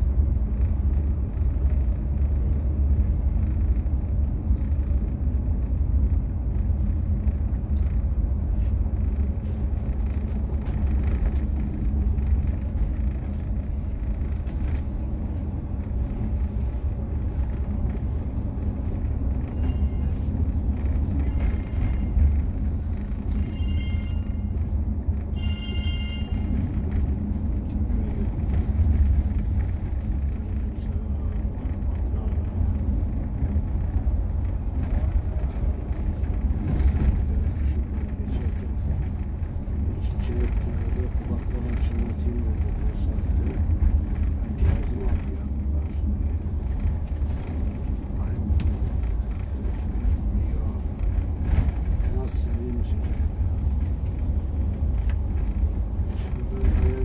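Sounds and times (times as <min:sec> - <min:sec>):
bus engine and tyre rumble: 0:00.0 - 0:57.0
high-pitched tones: 0:25.4 - 0:26.5.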